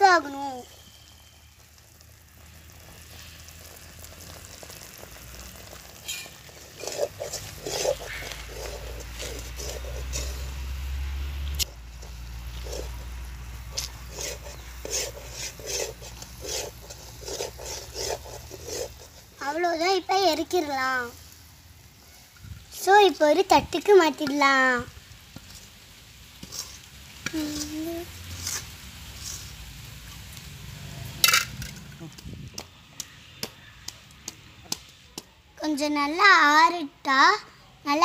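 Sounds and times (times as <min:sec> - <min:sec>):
metal ladle scraping a pan: 0:05.6 - 0:20.6, 0:25.3 - 0:30.3.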